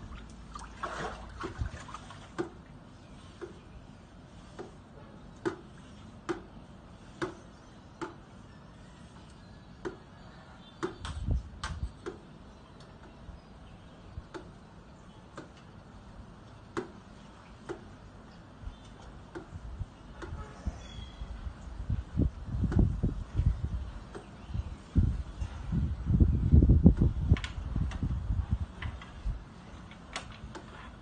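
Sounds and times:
pool pole hollow clicks: 14.3 - 14.6, 16.7 - 17.0.

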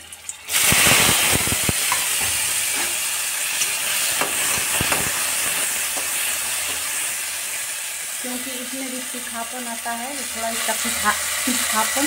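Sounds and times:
steady frying hiss: 0.0 - 12.0
vegetables sizzling in hot oil: 0.0 - 12.0.

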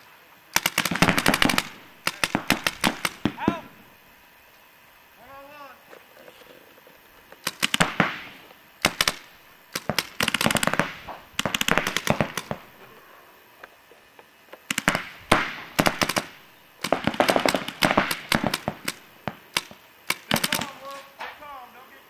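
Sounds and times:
paintball markers firing: 0.6 - 3.8, 7.3 - 12.8, 14.6 - 21.2.

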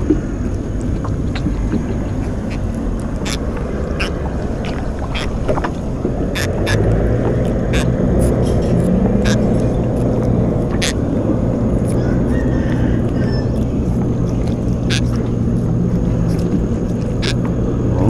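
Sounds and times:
low rumble: 0.0 - 18.0.

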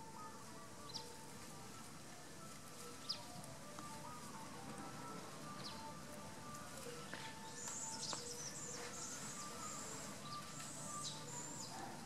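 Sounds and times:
birds chirping: 5.5 - 6.0, 6.9 - 12.0.

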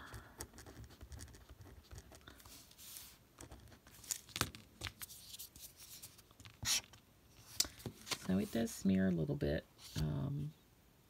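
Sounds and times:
gel pen scratching on paper: 0.4 - 2.2
paper rustling: 1.8 - 8.7.

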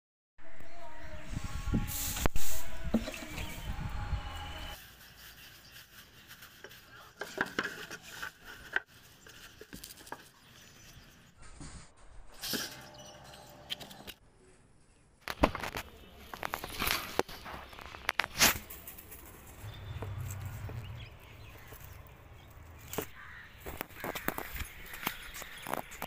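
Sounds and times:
straw and cardboard rustling: 4.8 - 11.8, 15.4 - 26.0.

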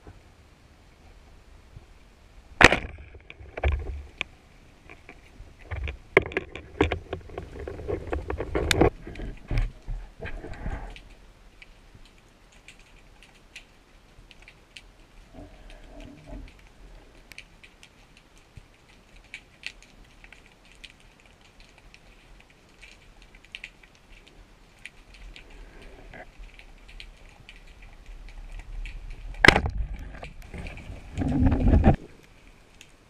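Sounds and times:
underwater clicks and crackles: 2.6 - 33.0.

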